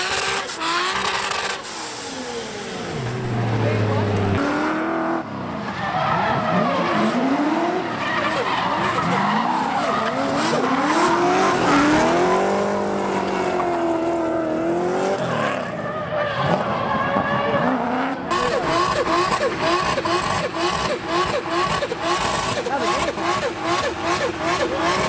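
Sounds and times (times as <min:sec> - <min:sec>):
car engines revving: 0:00.0 - 0:25.0
tyres skidding and squealing: 0:00.0 - 0:25.0.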